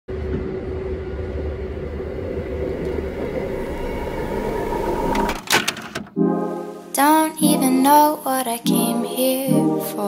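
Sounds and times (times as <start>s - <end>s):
train whine: 0.1s - 5.4s
train running gear rumble: 0.1s - 5.5s.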